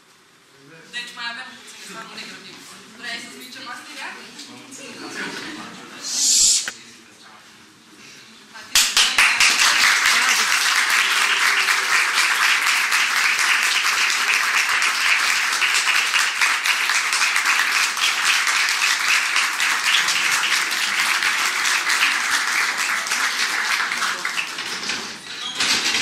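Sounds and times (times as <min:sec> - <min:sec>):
audience applause: 0:08.8 - 0:25.2.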